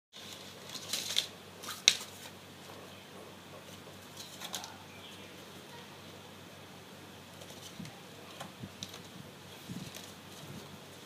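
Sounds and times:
cardboard box crackling and snapping: 0.2 - 2.4, 7.4 - 10.6.

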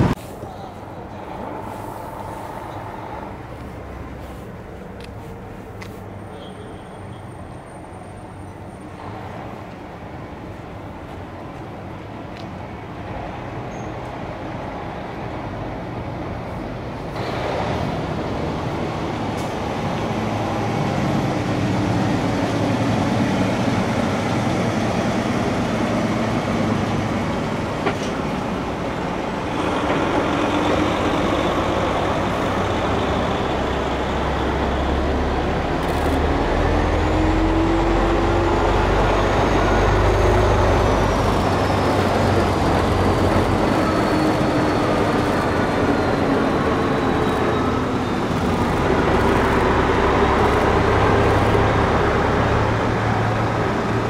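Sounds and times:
diesel truck engine running: 28.4 - 54.0.

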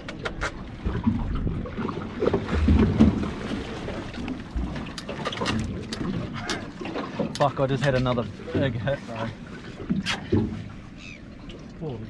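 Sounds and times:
wind rumbling on microphone: 0.0 - 6.5.

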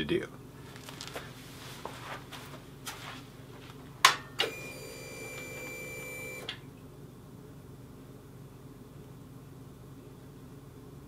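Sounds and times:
faint footsteps and shuffles: 0.6 - 4.0
fuel pump electric whine: 4.4 - 6.6.

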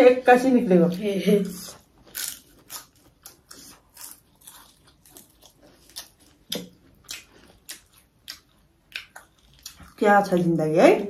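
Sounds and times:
chewing and lip smacking: 1.6 - 10.4.

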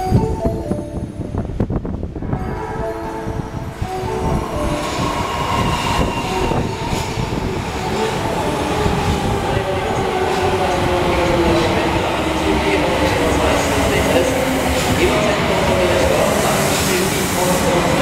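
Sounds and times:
train wheels rumbling on rail: 0.5 - 18.0
train braking whine: 2.2 - 9.0.

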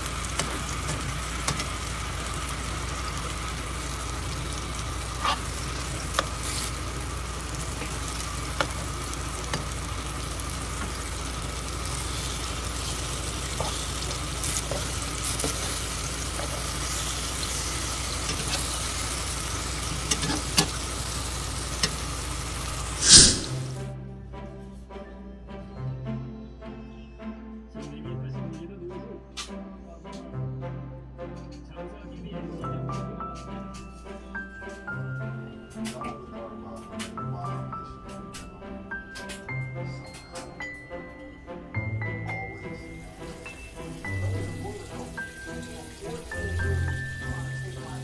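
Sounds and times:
bananas sizzling in oil: 0.0 - 23.8, 42.1 - 48.0
oil popping: 0.0 - 23.8.

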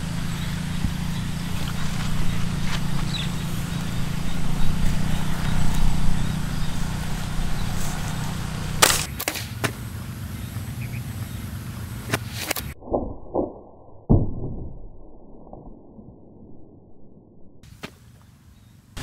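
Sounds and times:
low background rumble: 0.0 - 9.1.

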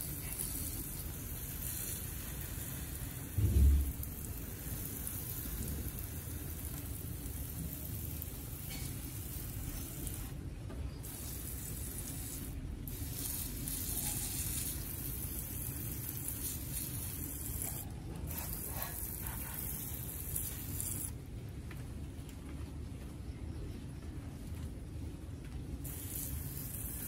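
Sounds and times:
water hissing from hose nozzle: 0.0 - 10.4, 11.0 - 21.1, 25.8 - 27.0.

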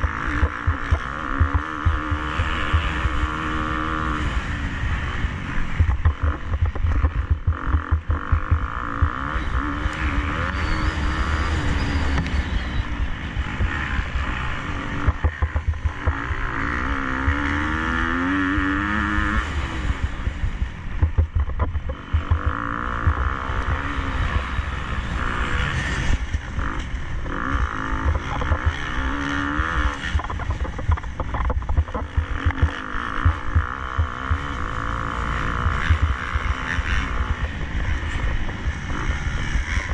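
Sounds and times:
motocross bike engine revving: 0.0 - 39.9
low rumble with short knocks: 5.8 - 8.7, 21.0 - 23.2, 30.2 - 34.5.

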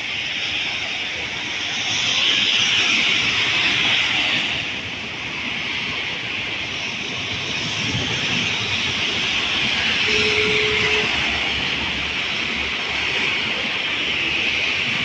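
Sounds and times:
short steady tone: 10.0 - 11.2.

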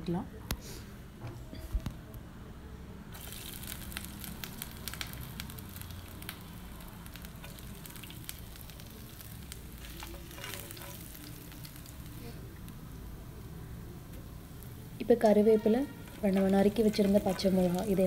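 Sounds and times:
hot oil sizzling and popping: 3.1 - 18.0
spatula stirring pan: 7.1 - 12.2, 15.2 - 18.0.

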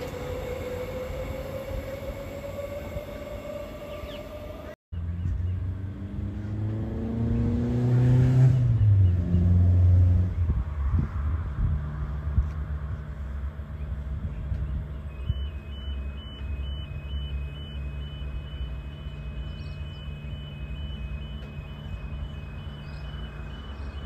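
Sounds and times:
low engine rumble: 0.0 - 7.6, 8.6 - 24.0
two-tone electronic beeping: 15.1 - 24.0.

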